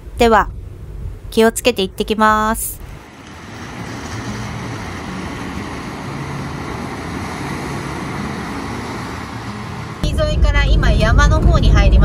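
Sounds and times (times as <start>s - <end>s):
wind noise: 0.0s - 8.0s, 10.0s - 12.0s
van driving road noise: 2.6s - 12.0s.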